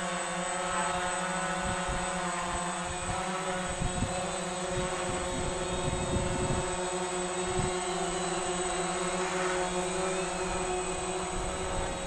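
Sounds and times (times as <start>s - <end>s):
drone propellers whining: 0.0s - 12.0s
wind buffeting microphone: 2.8s - 8.0s.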